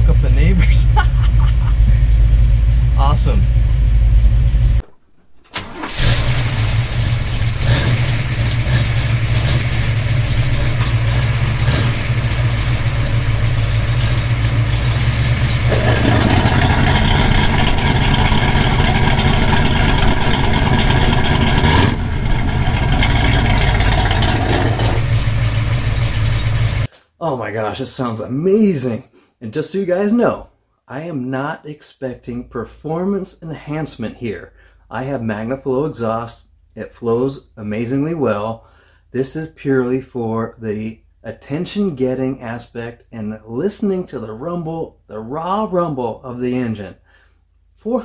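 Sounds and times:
unmuffled car engine rumble: 0.0 - 4.8, 5.9 - 26.9.

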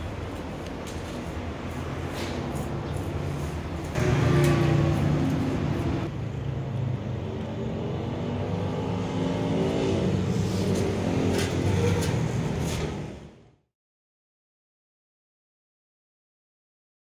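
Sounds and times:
vehicle engine running: 0.0 - 6.6.

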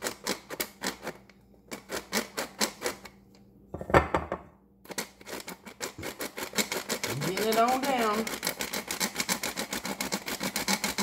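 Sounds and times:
knock: 3.8 - 4.5.

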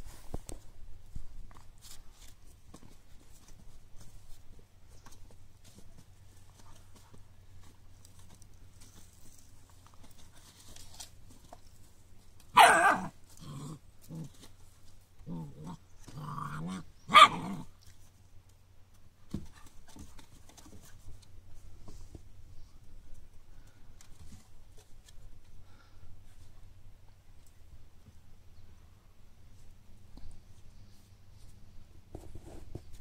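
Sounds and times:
puppy barking: 12.5 - 13.1, 17.1 - 17.6.

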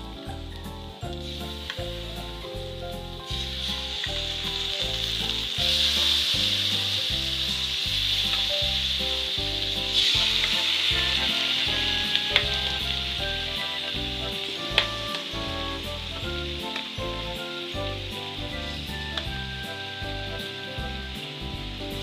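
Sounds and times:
chicken sizzling in hot oil: 0.0 - 22.0.

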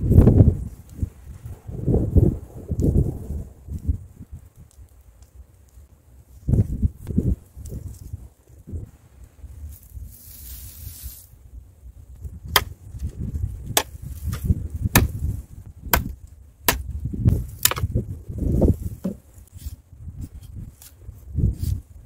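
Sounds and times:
knife chopping wooden stick: 12.5 - 12.8, 13.8 - 15.2, 15.9 - 16.9, 17.6 - 17.9.

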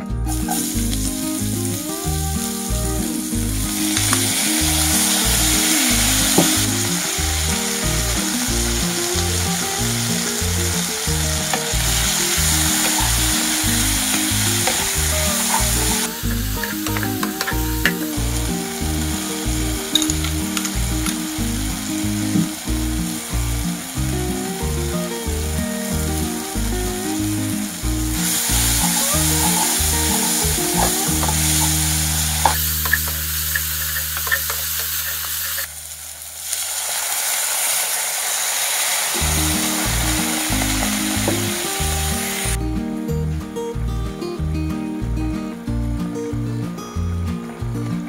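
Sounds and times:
music with steady beat: 0.0 - 35.0, 39.2 - 48.0
vegetables sizzling in oil: 0.3 - 43.0
utensil clicking on pan: 28.3 - 35.7.

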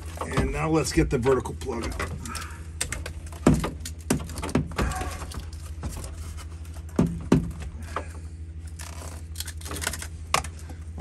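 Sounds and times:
housing bumping dashboard: 0.0 - 8.2
steady low hum: 0.0 - 11.0.

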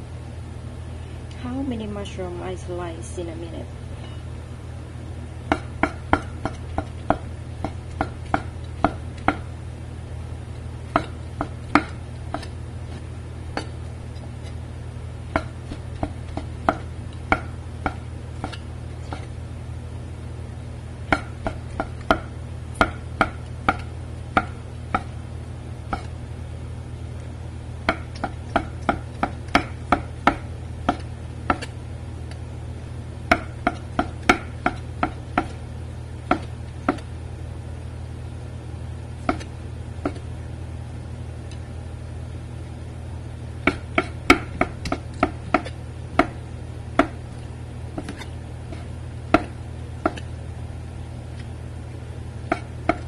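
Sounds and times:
steady low hum: 0.0 - 53.0
cleaver chopping on board: 5.5 - 9.5, 10.9 - 13.0, 15.3 - 19.3, 21.1 - 25.1, 27.9 - 31.7, 33.3 - 35.6, 36.3 - 37.1, 39.2 - 40.3, 43.6 - 46.4, 47.0 - 47.2, 48.0 - 50.3, 52.5 - 53.0.

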